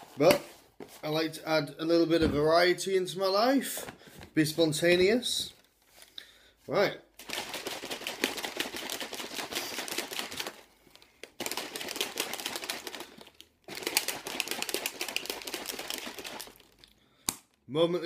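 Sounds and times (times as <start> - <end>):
shaker bottle rattling: 7.2 - 16.8.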